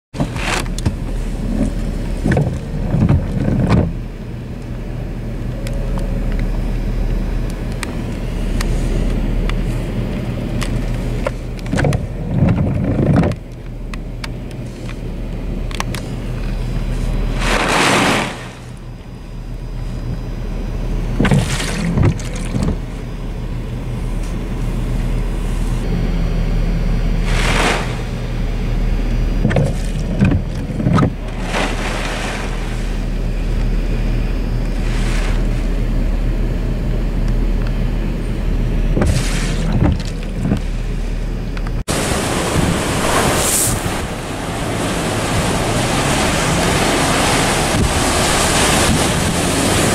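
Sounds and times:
wind gusts buffeting car: 0:00.1 - 0:49.9
car cabin low hum: 0:00.2 - 0:49.9
loud rushing gusts: 0:17.2 - 0:18.8, 0:27.1 - 0:28.8, 0:31.1 - 0:33.4, 0:41.8 - 0:49.9.

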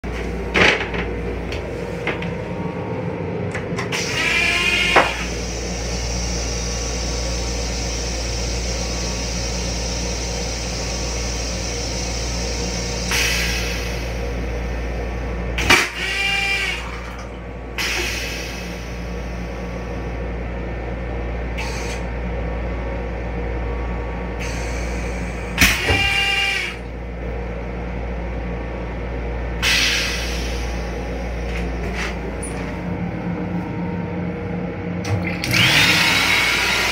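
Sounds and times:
railcar ventilation hum and hiss: 0:00.0 - 0:36.9
toilet flushing: 0:15.6 - 0:19.0.

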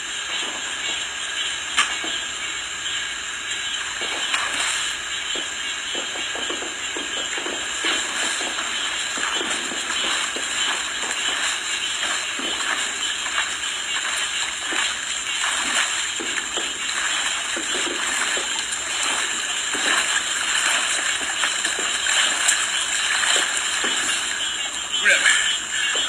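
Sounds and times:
steady hiss of water: 0:00.0 - 0:26.0
swimmer's strokes splashing: 0:03.6 - 0:26.0.

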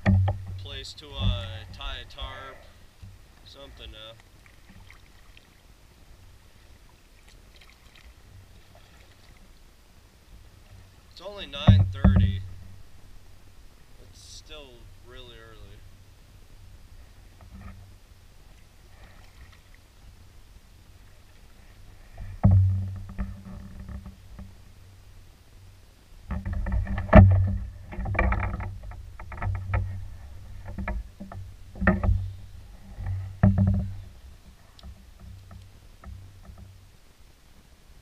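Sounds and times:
knocks on canoe hull: 0:00.0 - 0:01.9, 0:11.5 - 0:12.5, 0:30.6 - 0:32.4, 0:33.0 - 0:34.0.

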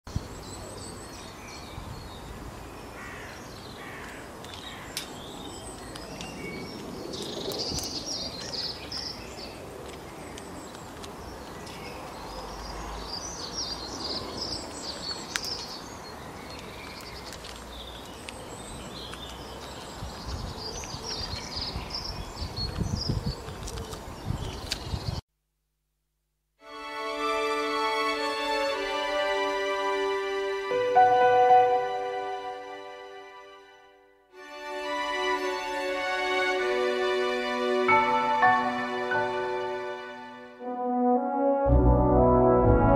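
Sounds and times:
outdoor background noise: 0:00.1 - 0:25.2
low rumbling: 0:41.6 - 0:42.9.

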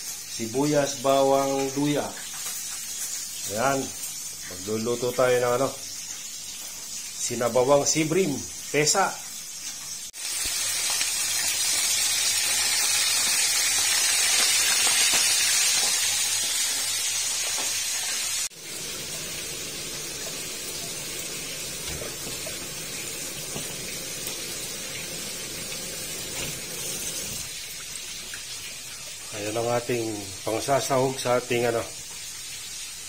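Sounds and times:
fish sizzling in hot oil: 0:00.0 - 0:33.0
tap water splashing: 0:20.1 - 0:28.5.

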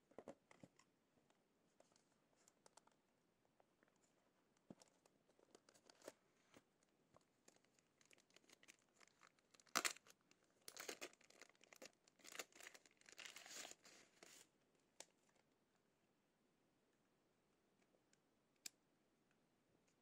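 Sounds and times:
packaging wrap crinkling and tearing: 0:07.5 - 0:13.8.

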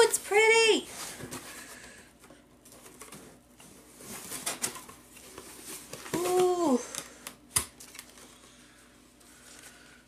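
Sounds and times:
packaging rustling and crinkling: 0:02.6 - 0:08.6
woman saying ooh: 0:06.2 - 0:06.9.

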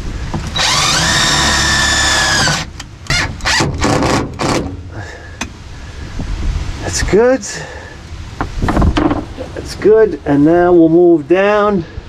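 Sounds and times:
cordless drill whining: 0:00.3 - 0:04.6.

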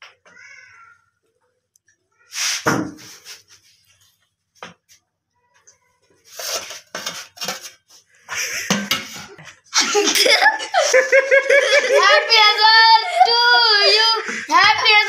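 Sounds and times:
child's wavering voice: 0:00.3 - 0:01.2, 0:11.8 - 0:15.0
knife scraping a steel tray: 0:06.3 - 0:07.8.

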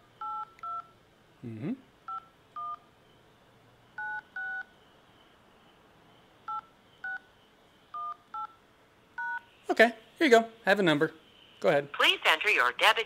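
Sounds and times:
keypad beeps: 0:00.2 - 0:00.9, 0:04.0 - 0:04.7, 0:06.5 - 0:07.3, 0:08.0 - 0:08.6, 0:09.2 - 0:09.5.

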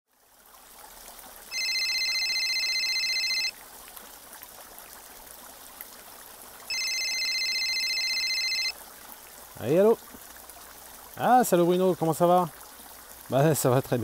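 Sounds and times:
fountain splashing: 0:00.1 - 0:14.0
electronic telephone ringtone: 0:01.5 - 0:03.5, 0:06.7 - 0:08.8.

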